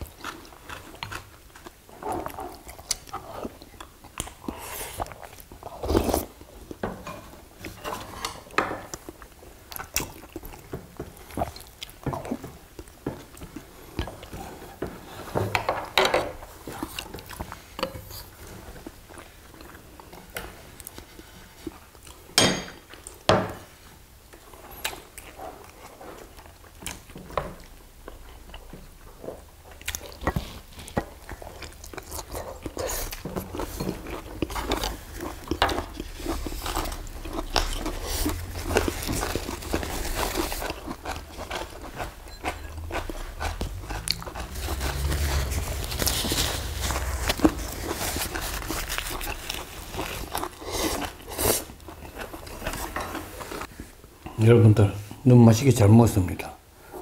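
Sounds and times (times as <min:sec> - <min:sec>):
people chewing and biting: 0:00.0 - 0:15.4, 0:16.4 - 0:23.3, 0:24.3 - 0:54.4
chopsticks and spoons on bowls: 0:30.0 - 0:53.6.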